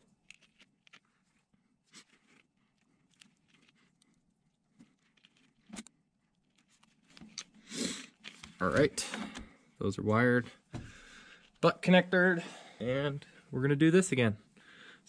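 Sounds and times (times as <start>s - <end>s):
rustling: 0.0s - 8.9s.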